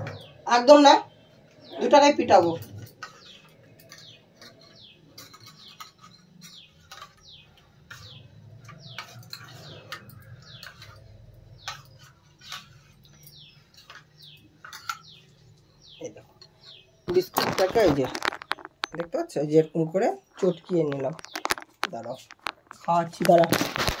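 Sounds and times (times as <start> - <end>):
fingers mashing biscuits in bowl: 2.7 - 15.6.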